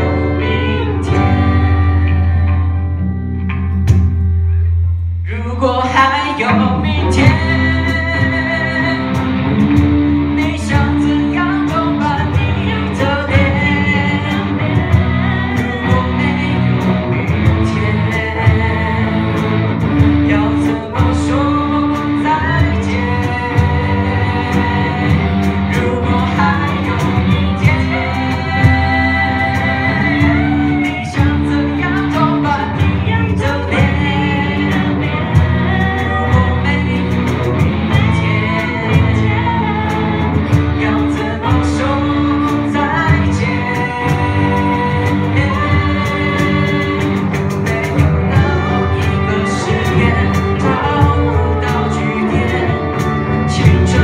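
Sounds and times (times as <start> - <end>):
person singing: 0.0 - 3.0, 5.3 - 54.0
bass guitar: 0.0 - 54.0
electric guitars: 0.0 - 54.0
cajon: 42.4 - 54.0.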